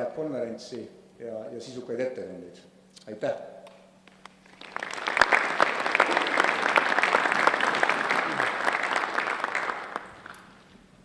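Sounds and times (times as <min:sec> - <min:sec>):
audience applauding: 0:04.1 - 0:10.6.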